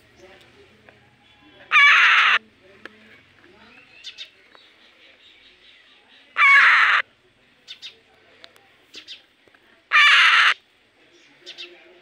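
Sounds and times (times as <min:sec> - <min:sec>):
parrot screech: 0:01.7 - 0:02.4, 0:06.4 - 0:07.0, 0:09.9 - 0:10.6.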